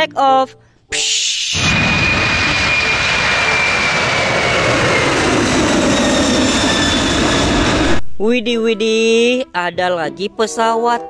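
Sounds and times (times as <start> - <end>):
jet engines roaring on takeoff: 1.0 - 8.2.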